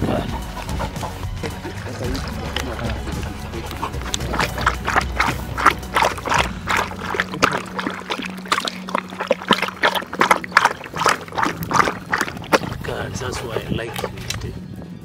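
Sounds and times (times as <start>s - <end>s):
dog lapping water: 0.0s - 14.6s.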